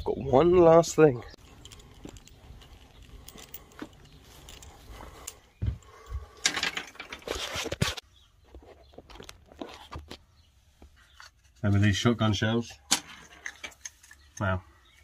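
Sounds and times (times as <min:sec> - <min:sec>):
scraping rustle: 0:06.3 - 0:10.3.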